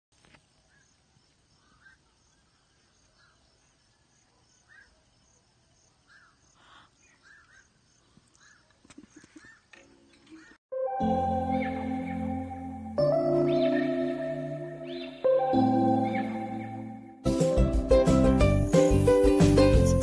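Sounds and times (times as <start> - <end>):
insect chirping: 0.2 - 8.8
bird short calls: 8.4 - 9.7.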